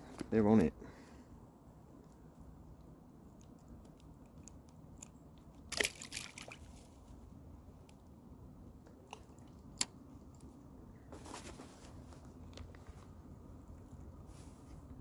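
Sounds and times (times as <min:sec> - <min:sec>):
water splash: 0:05.7 - 0:06.7.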